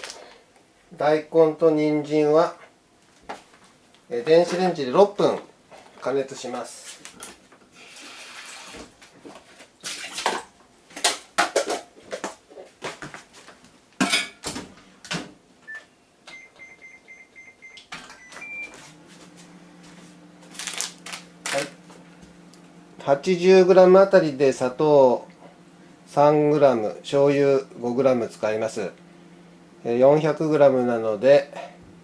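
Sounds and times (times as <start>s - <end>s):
microwave humming: 14.1s - 32.0s
microwave beeps: 15.6s - 18.8s
plastic bag rustling: 20.4s - 21.7s.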